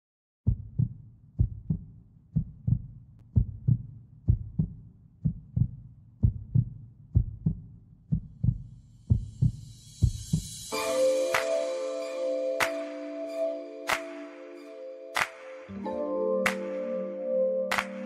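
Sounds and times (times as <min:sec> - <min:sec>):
heartbeat thumps: 0:00.5 - 0:10.6.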